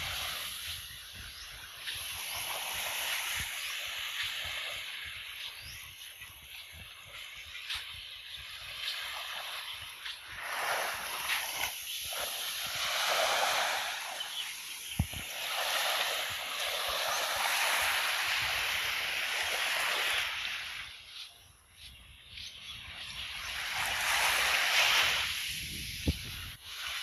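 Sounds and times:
small waves washing on shore: 0.0 - 27.0.

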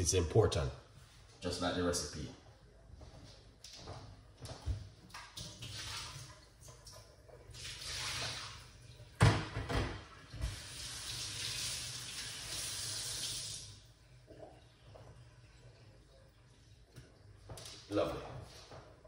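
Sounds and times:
kitchen tap running into sink: 5.1 - 18.1
things clunking against sink: 9.2 - 10.1.

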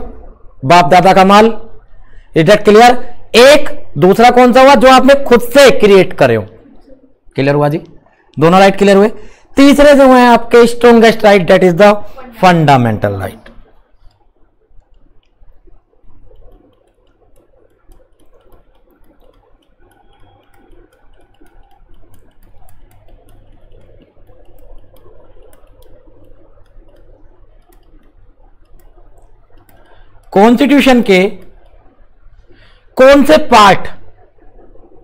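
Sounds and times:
low steady hum: 0.0 - 35.0
stylus tapping and scratching: 13.3 - 32.6.

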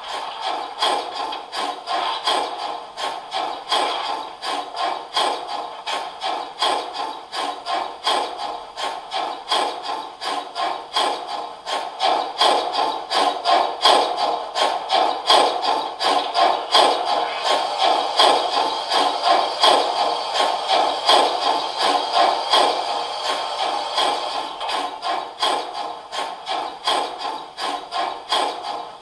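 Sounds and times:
steam exhaust chuffs: 0.0 - 29.0.

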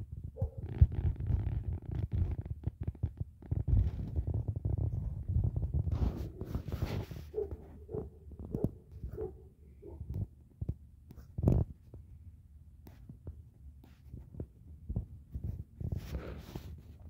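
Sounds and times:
low thumps on microphone: 0.1 - 7.7.

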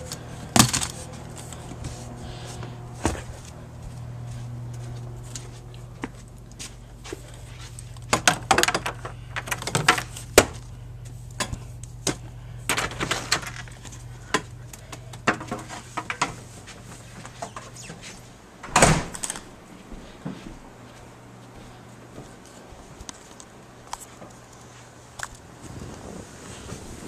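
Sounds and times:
low hum: 0.0 - 27.0
door shutting with a bang: 18.6 - 19.4.

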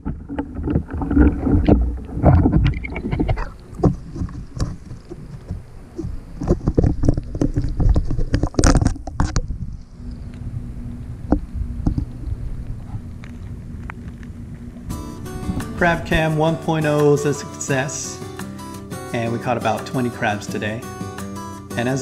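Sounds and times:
camera handling rumble: 0.4 - 10.5.

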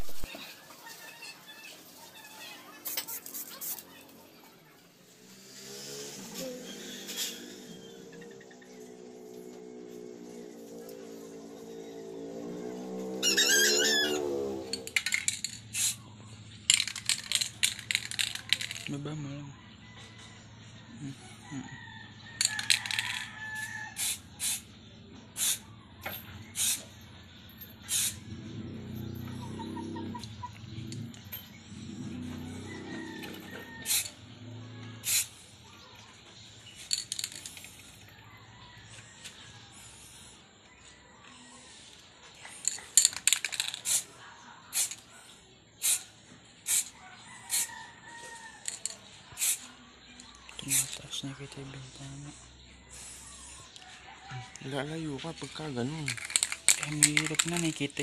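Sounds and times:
spray can mixing ball rattle: 1.8 - 4.2, 14.7 - 16.0, 16.7 - 18.9, 22.4 - 24.7, 25.4 - 25.6, 26.5 - 26.9, 27.8 - 28.2, 33.8 - 34.1, 35.0 - 35.4, 36.8 - 37.8, 42.6 - 44.1, 44.7 - 45.0, 45.8 - 47.7, 48.6 - 49.7, 50.6 - 51.0, 56.0 - 58.0
spray can hissing: 15.0 - 16.0, 24.0 - 24.7, 25.4 - 25.6, 26.6 - 26.9, 27.9 - 28.2, 33.9 - 34.1, 35.0 - 35.4, 43.6 - 44.1, 44.7 - 45.0, 45.8 - 46.1, 46.7 - 47.7, 49.4 - 49.7.

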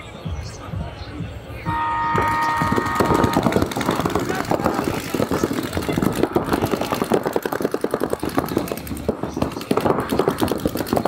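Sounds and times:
paintball guns firing rapidly: 2.2 - 11.0.

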